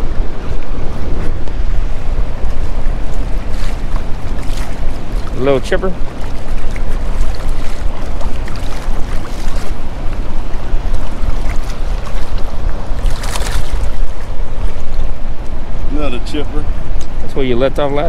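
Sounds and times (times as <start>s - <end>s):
lapping shallow water: 0.0s - 17.3s
wind rumbling on microphone: 0.0s - 18.0s
fish splashing at surface: 3.1s - 15.0s.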